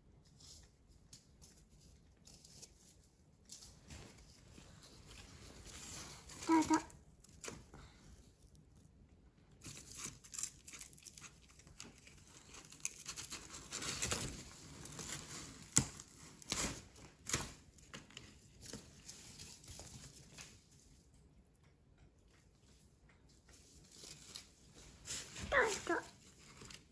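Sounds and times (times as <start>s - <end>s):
cardboard tearing and crinkling: 9.6s - 20.3s, 24.0s - 26.9s.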